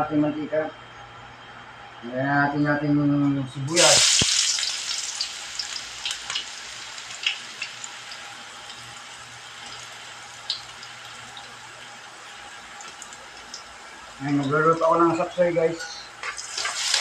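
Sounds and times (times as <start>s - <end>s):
garlic sizzling in oil: 3.8s - 14.4s, 16.1s - 17.0s
oil popping and crackling: 3.8s - 14.5s, 16.2s - 17.0s.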